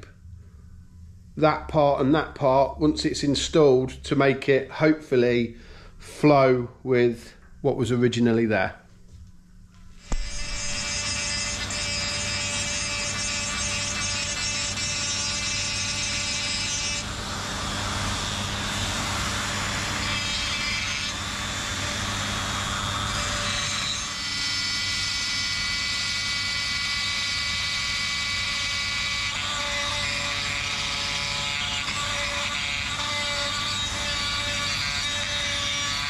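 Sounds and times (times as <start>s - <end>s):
die grinder grinding metal: 10.0s - 36.0s.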